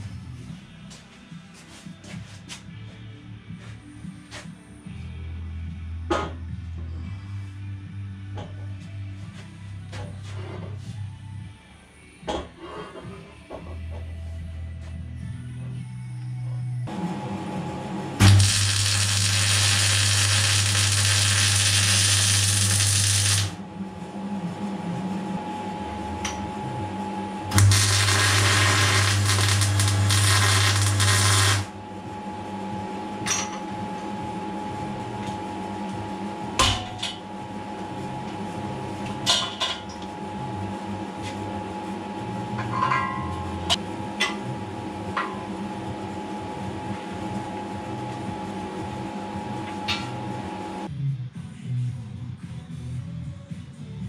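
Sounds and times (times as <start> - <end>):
arc welder crackling hiss: 18.2 - 23.6, 27.5 - 31.7.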